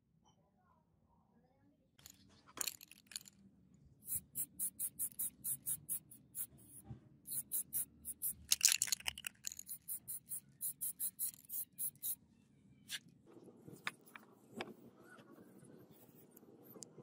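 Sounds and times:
spray paint hissing: 4.0s - 12.2s.

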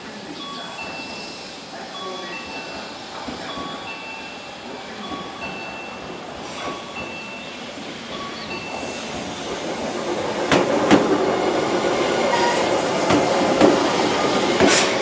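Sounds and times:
electric train passing: 0.0s - 15.0s
train wheels clacking over rail joints: 8.2s - 15.0s.

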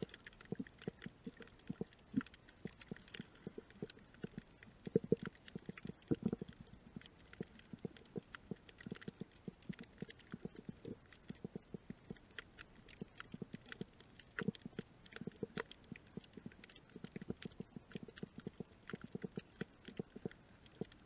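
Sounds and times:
underwater clicking and crackling: 0.0s - 21.0s.

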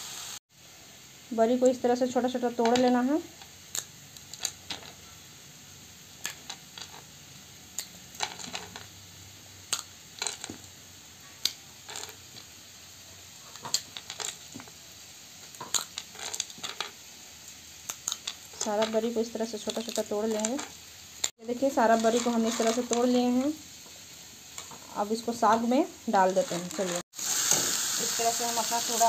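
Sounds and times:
dried dumplings cracking and crunching: 17.8s - 18.7s.

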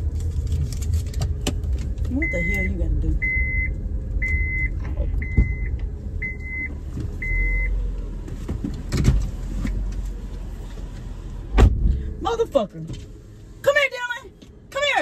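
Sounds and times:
low steady rumble: 0.0s - 15.0s
car warning chime beeps: 2.1s - 7.8s
car door slammed shut: 11.5s - 12.0s.

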